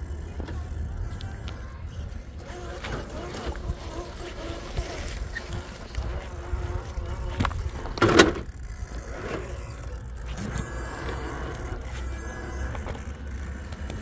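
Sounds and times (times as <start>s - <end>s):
faint electric motor whine: 0.0s - 14.0s
tyres knocking and scraping: 2.5s - 9.6s.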